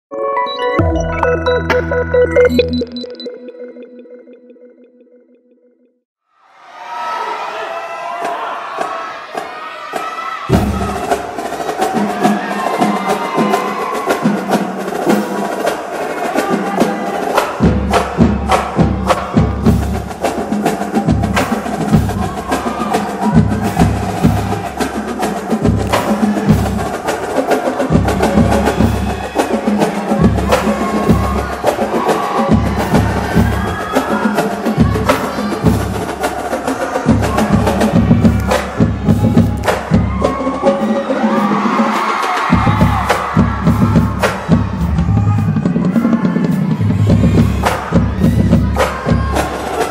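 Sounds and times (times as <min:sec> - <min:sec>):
dance music: 0:00.1 - 0:05.1, 0:10.4 - 0:49.9
heavy bass beat: 0:17.4 - 0:41.8, 0:42.4 - 0:49.9.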